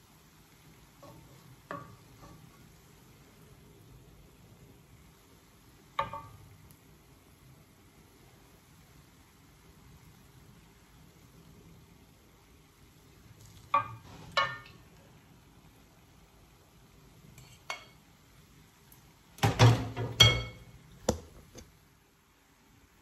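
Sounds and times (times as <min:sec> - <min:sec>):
spatula scraping and knocking wok: 0:00.8 - 0:03.1, 0:13.7 - 0:14.9, 0:17.3 - 0:18.0, 0:19.4 - 0:21.7.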